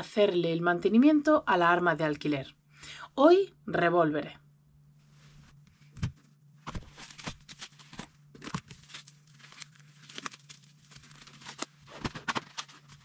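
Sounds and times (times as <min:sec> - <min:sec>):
rubber gloves crinkling and snapping: 0:06.0 - 0:13.0.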